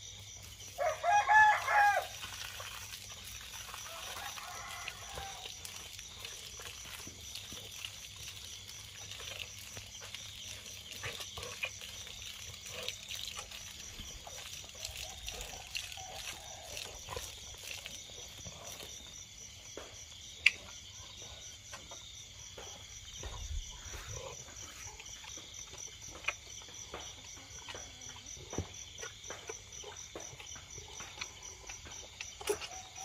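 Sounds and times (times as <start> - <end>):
crickets chirping: 0.0 - 33.0.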